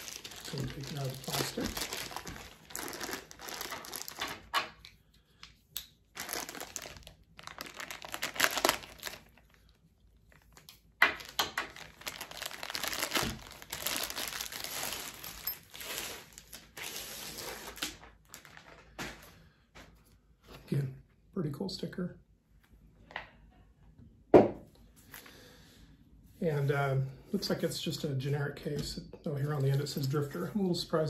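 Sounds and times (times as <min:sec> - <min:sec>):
plastic wrap crinkling and tearing: 0:00.0 - 0:04.8, 0:06.1 - 0:19.3.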